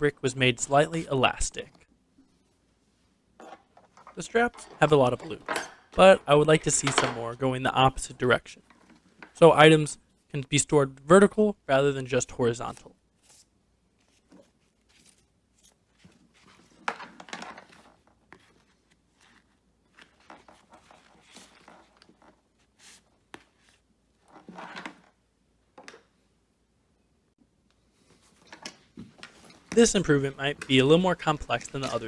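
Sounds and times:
nylon straps rustling and scraping: 13.2 - 25.1.

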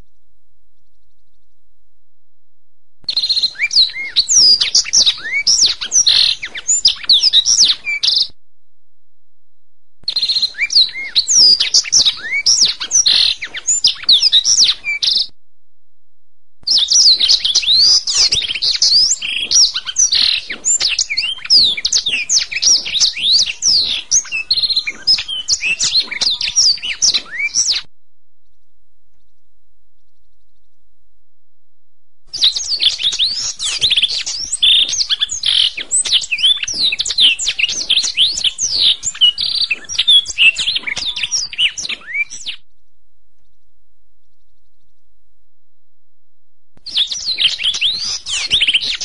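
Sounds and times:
canary singing: 3.1 - 8.3, 10.1 - 15.3, 16.7 - 27.9, 32.3 - 42.6, 46.8 - 49.0.

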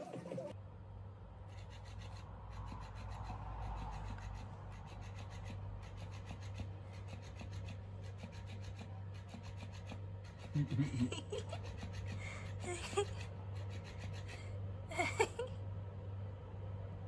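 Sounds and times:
small motor whirring: 1.5 - 10.6, 11.6 - 12.6, 13.2 - 14.4.

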